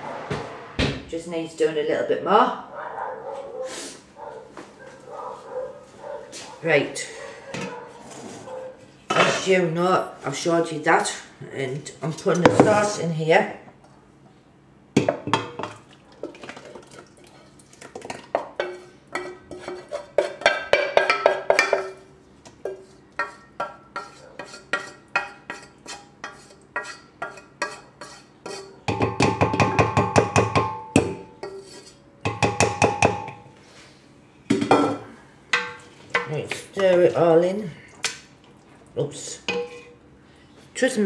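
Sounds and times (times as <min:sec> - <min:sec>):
spoon scraping a pan: 0:18.4 - 0:28.9, 0:31.3 - 0:32.4, 0:39.5 - 0:40.0.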